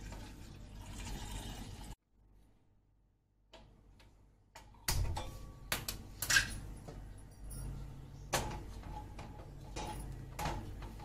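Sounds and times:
kitchen knocks and clatters: 4.5s - 11.0s.

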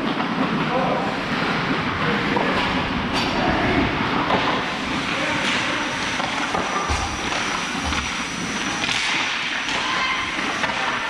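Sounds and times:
hockey sticks and puck clacking: 5.4s - 11.0s.

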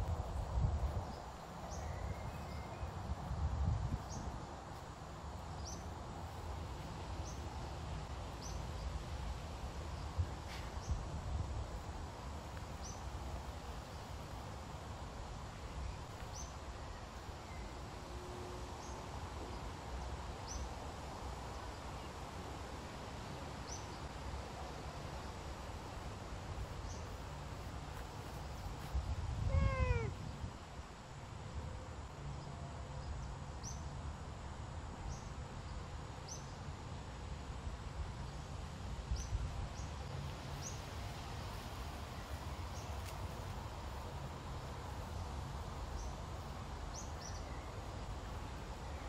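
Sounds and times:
cat meowing: 29.5s - 30.2s.

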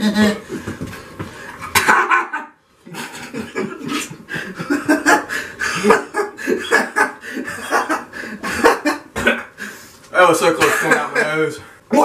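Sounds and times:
man laughing: 1.6s - 9.6s, 10.6s - 11.5s.

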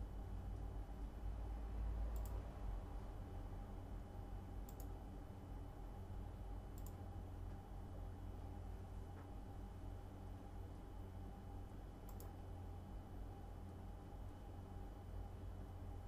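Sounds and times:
steady low hum: 0.0s - 16.0s
computer mouse clicks: 2.1s - 2.4s, 4.6s - 5.0s, 6.7s - 7.0s, 12.0s - 12.4s.

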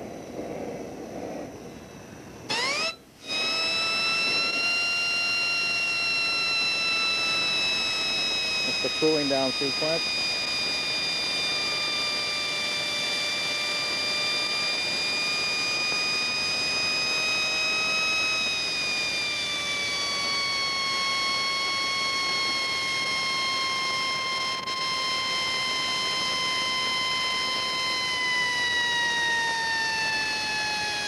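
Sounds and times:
jet turbine whine: 0.0s - 31.0s
airy hiss: 6.6s - 12.7s.

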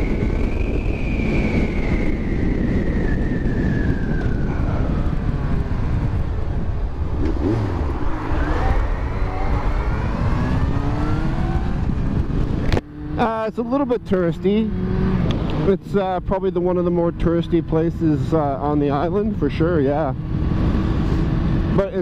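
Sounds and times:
motorcycle engine accelerating: 0.0s - 22.0s
wind rushing over microphone: 0.0s - 22.0s.

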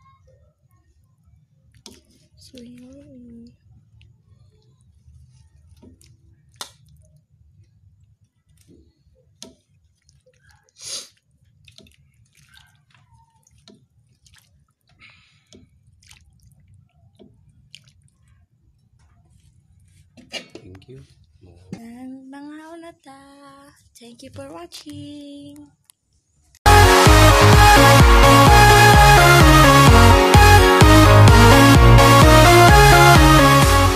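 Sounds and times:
stew simmering pops: 1.6s - 3.1s, 3.8s - 20.7s.

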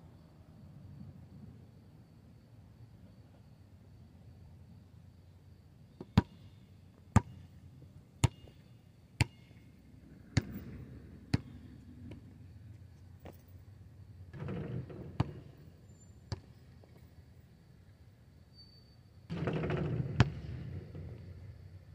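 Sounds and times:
basketball bouncing on asphalt: 6.0s - 9.6s, 10.2s - 12.3s, 14.3s - 15.7s, 16.3s - 16.9s, 19.3s - 21.4s.

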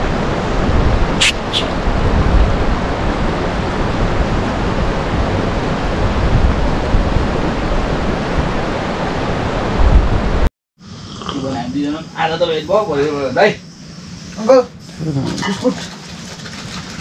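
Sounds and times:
strong wind on microphone: 0.0s - 10.5s.

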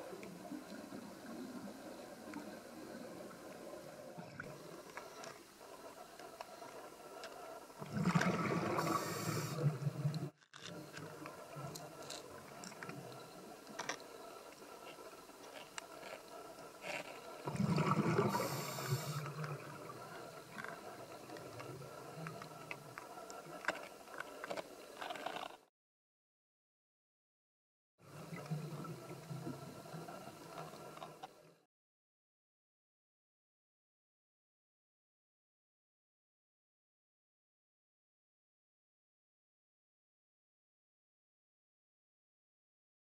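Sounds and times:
faint underwater clicks: 0.1s - 25.6s, 28.1s - 31.6s
bubbling rumble with hiss: 7.8s - 13.3s, 17.3s - 23.0s.

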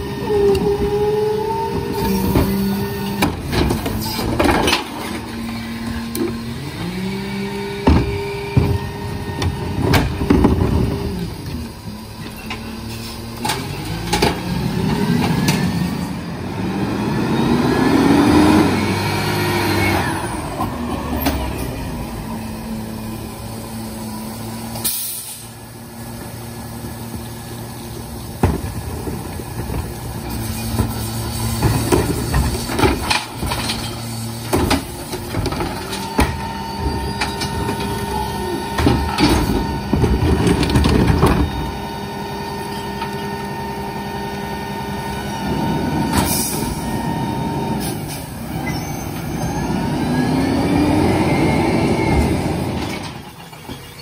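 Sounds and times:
diesel engine whining: 0.0s - 54.0s
air brake hissing: 24.8s - 25.6s, 46.2s - 46.9s.

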